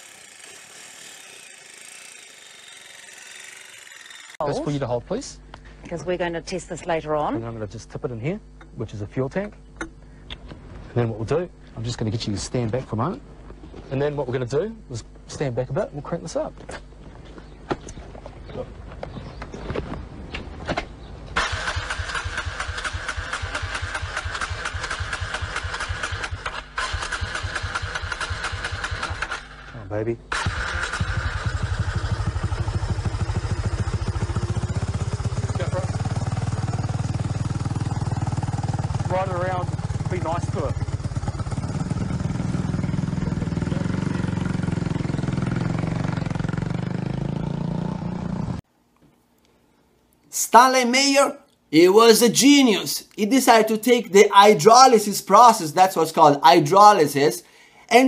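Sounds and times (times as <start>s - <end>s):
motorcycle engine cranking: 21.4s - 39.0s.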